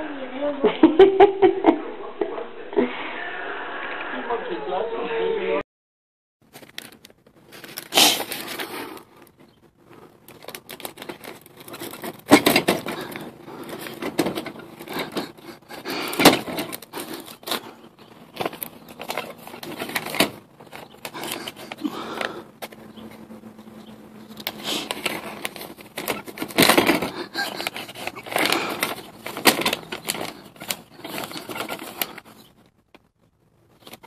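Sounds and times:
envelopes rustling through mail slot: 6.4s - 34.0s
mail slot flap knocking: 10.4s - 15.4s.

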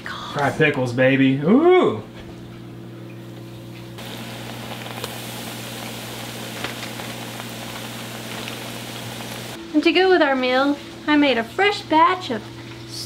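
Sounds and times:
deep fryer low hum: 0.0s - 13.0s
food sizzling in hot oil: 4.0s - 9.6s.

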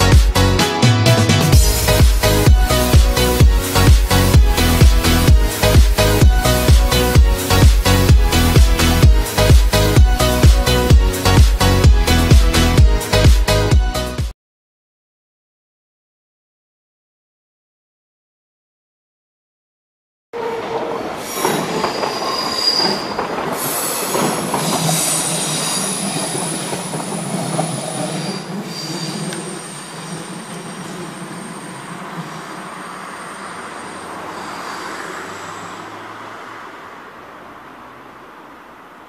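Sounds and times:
train running noise: 0.0s - 13.2s, 20.4s - 36.0s
train wheels squealing: 20.4s - 35.9s.

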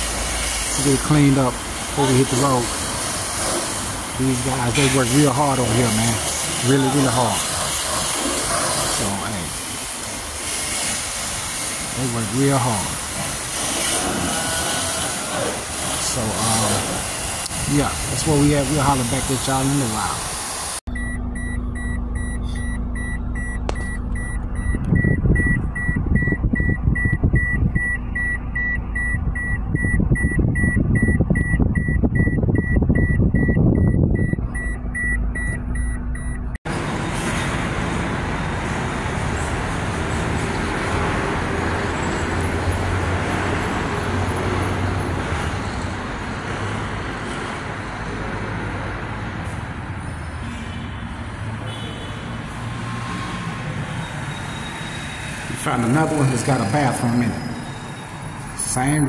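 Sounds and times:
car engine and road rumble: 0.0s - 59.0s
rapid high electronic beeps: 20.9s - 36.6s.

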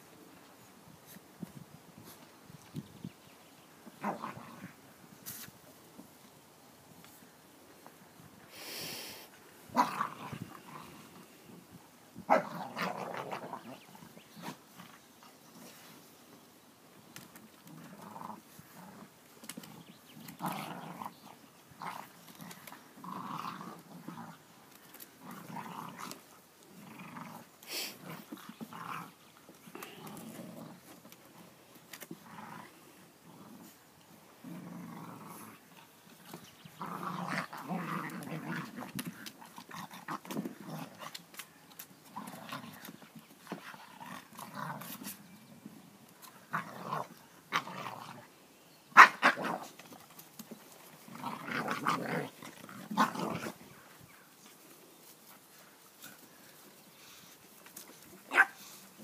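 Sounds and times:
puppies growling in play: 3.9s - 4.8s, 9.7s - 15.7s, 17.4s - 41.3s, 42.0s - 45.6s, 46.2s - 48.4s, 49.0s - 53.9s.

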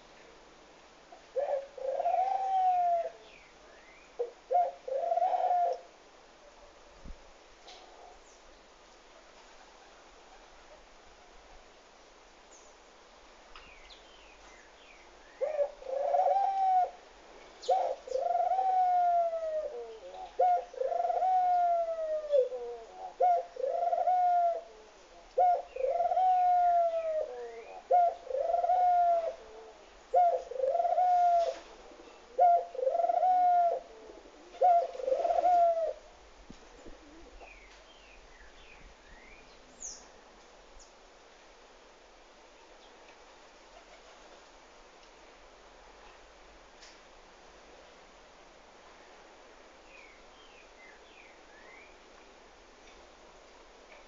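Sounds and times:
dove cooing: 1.3s - 3.2s, 4.2s - 5.9s, 15.4s - 17.0s, 17.6s - 36.1s, 36.7s - 37.7s.

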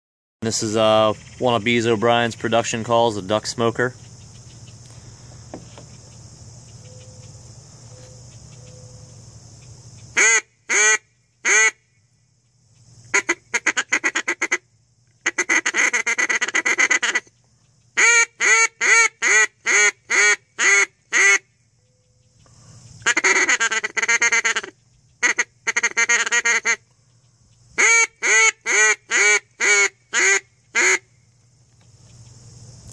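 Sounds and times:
crickets chirping: 0.4s - 32.9s
duck call quacking: 10.2s - 11.8s, 13.1s - 14.6s, 15.2s - 17.3s, 18.0s - 21.4s, 23.0s - 26.8s, 27.8s - 31.1s.

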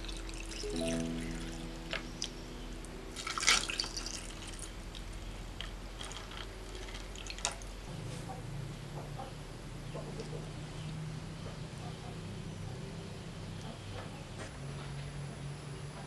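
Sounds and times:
liquid pouring over ice: 3.2s - 4.6s, 6.0s - 7.6s.

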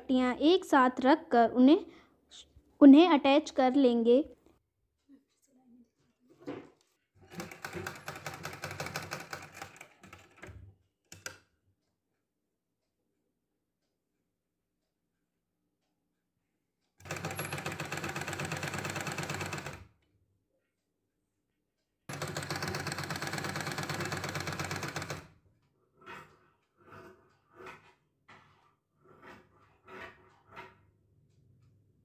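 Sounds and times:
sewing machine needle clatter: 7.2s - 11.4s, 17.0s - 19.9s, 22.1s - 25.3s.

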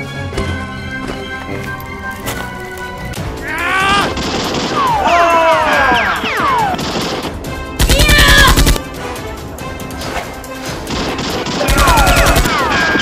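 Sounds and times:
background music: 0.0s - 13.0s
automatic gunfire: 4.2s - 5.0s, 6.7s - 8.8s, 10.9s - 13.0s.

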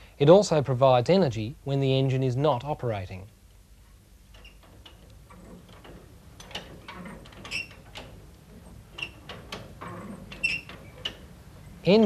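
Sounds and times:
mechanical clicks and knocks: 4.3s - 11.3s.

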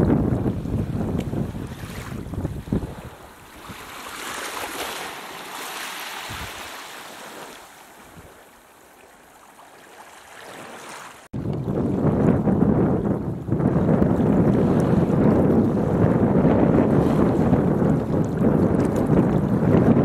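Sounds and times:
wind rumbling on microphone: 0.0s - 8.6s, 11.3s - 20.0s
small waves washing on shore: 0.0s - 12.1s.

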